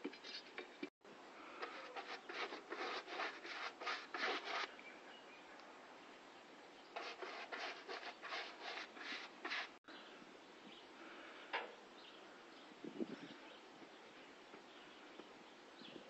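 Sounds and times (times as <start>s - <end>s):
abrasive rubbing strokes by hand: 1.6s - 4.7s, 7.0s - 9.8s.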